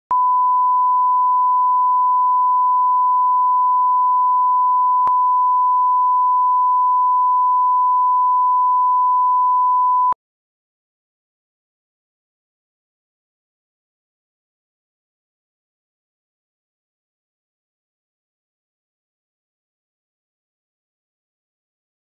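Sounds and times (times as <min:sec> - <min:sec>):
steady pure test tone beep: 0:00.1 - 0:10.2.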